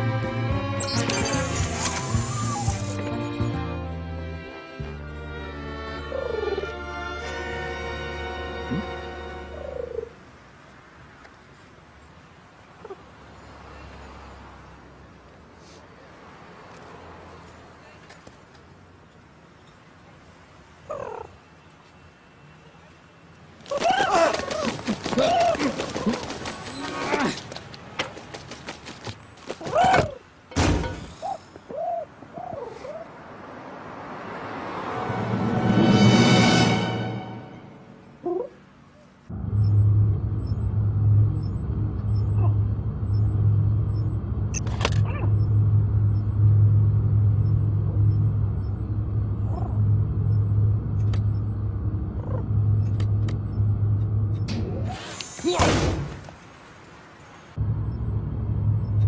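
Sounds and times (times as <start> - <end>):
low electronic hum: 39.3 - 54.6, 57.6 - 59.0.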